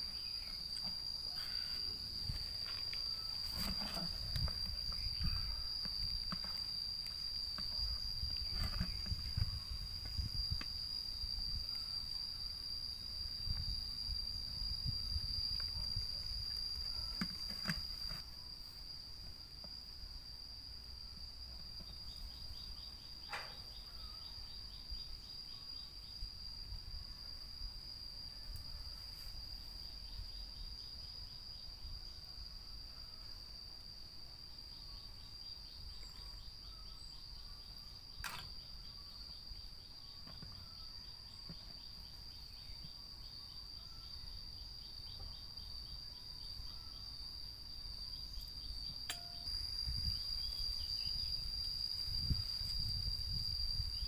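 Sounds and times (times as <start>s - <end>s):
insect ticking chirps: 0.0s - 18.2s, 34.6s - 54.0s
insect high-pitched drone: 0.0s - 54.0s.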